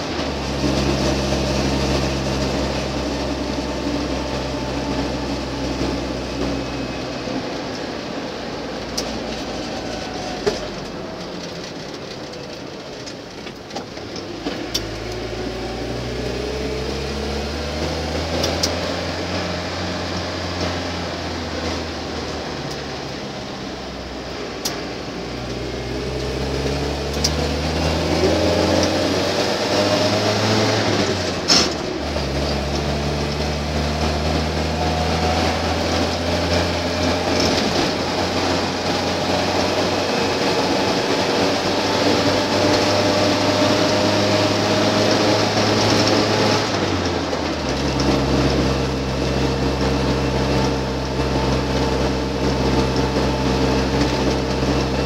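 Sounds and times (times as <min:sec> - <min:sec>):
car engine and drivetrain: 0:00.0 - 0:55.0.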